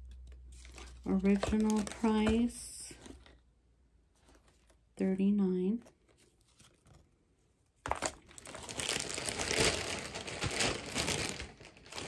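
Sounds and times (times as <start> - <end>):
packaging crinkling: 0.4 - 2.5, 7.9 - 12.0.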